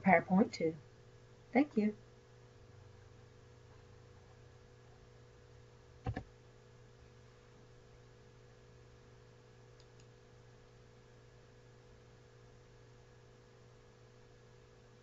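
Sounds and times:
low electrical hum: 0:00.0 - 0:15.0
computer mouse clicks: 0:06.0 - 0:06.3, 0:09.8 - 0:10.2.

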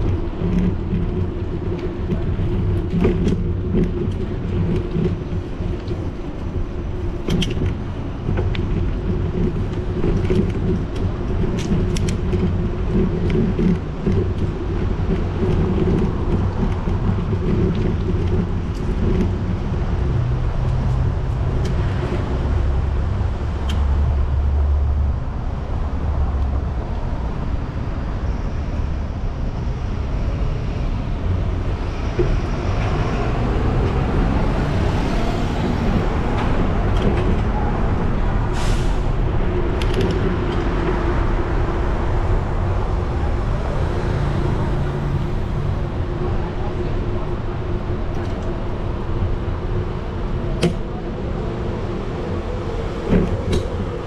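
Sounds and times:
bicycle clicks and rattles: 0:00.0 - 0:24.2, 0:34.7 - 0:38.3, 0:39.1 - 0:43.5
bicycle rumbling over paving: 0:00.0 - 0:54.0
street traffic with buses: 0:00.0 - 0:54.0.

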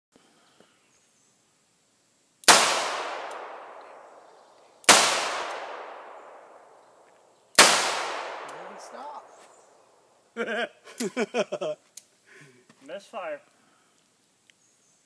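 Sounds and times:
revolver shots echoing: 0:02.5 - 0:06.8, 0:07.6 - 0:09.4.

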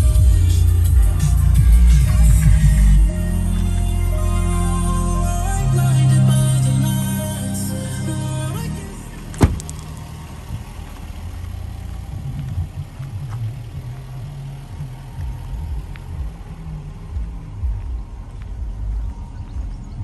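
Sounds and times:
car engine idling: 0:00.0 - 0:20.0
car door shutting: 0:09.2 - 0:11.0.

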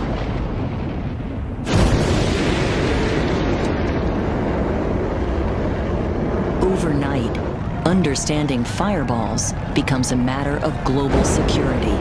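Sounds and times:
deep boom: 0:00.0 - 0:08.2
rocket engines rumbling: 0:00.0 - 0:12.0.

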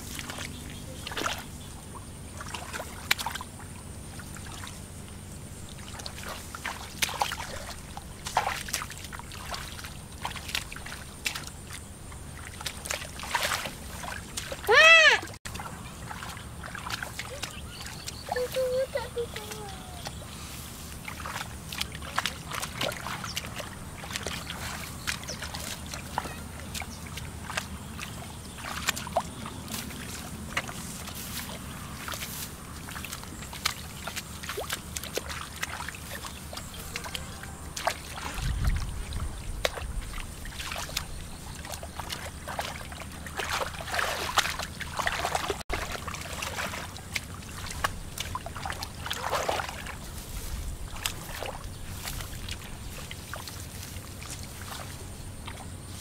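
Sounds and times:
muddy water sloshing and splashing: 0:00.0 - 0:56.0
water trickling: 0:00.0 - 0:56.0
low rumble: 0:36.5 - 0:41.3.

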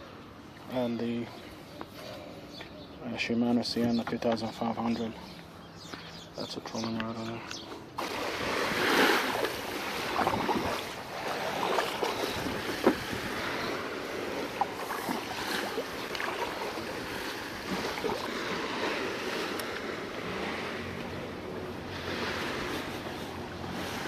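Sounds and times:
water lapping against kayak: 0:07.7 - 0:24.0
wind on microphone: 0:08.2 - 0:24.0.

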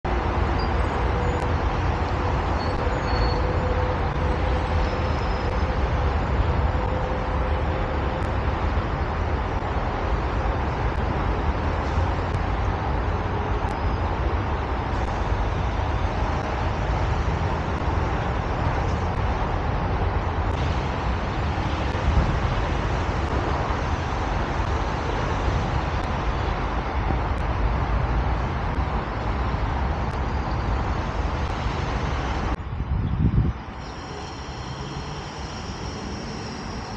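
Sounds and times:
highway traffic rushing: 0:00.0 - 0:36.9.

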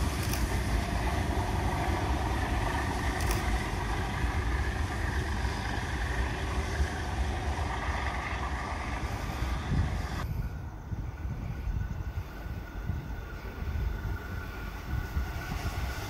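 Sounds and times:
distant steam train rumbling: 0:00.0 - 0:16.0
wind on microphone: 0:08.5 - 0:16.0.

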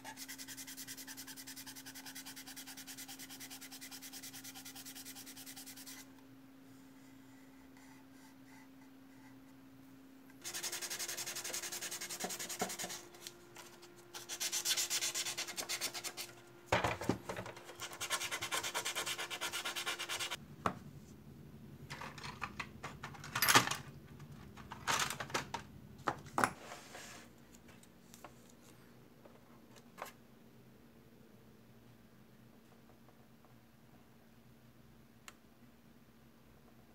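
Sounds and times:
sandpaper rasping on plastic: 0:00.0 - 0:06.0, 0:10.4 - 0:13.1, 0:17.8 - 0:20.4.

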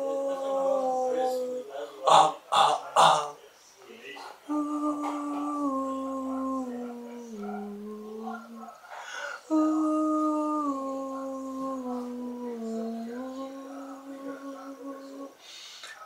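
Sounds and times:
man humming: 0:00.0 - 0:02.2, 0:04.5 - 0:08.7, 0:09.4 - 0:15.4.

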